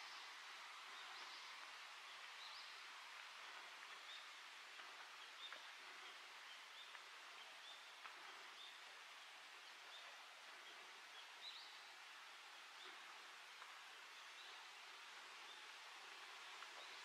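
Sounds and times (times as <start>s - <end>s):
steady hiss: 0.0s - 17.0s
soft ticks: 3.5s - 8.8s, 12.8s - 13.8s.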